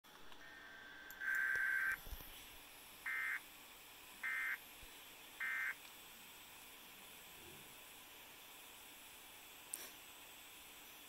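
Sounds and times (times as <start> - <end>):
electronic data bursts: 0.4 - 2.0, 3.0 - 3.4, 4.2 - 4.6, 5.4 - 5.8.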